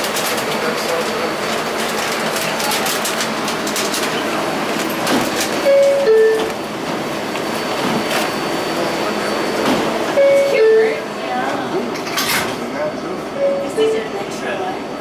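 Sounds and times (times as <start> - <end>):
subway car noise: 0.0 - 15.0
two-note descending door chime: 5.7 - 6.6.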